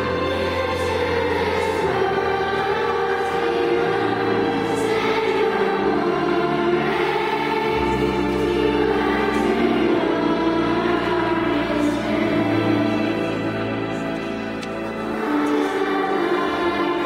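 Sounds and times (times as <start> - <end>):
children's choir singing: 0.0 - 17.0
low accompaniment: 0.0 - 17.0.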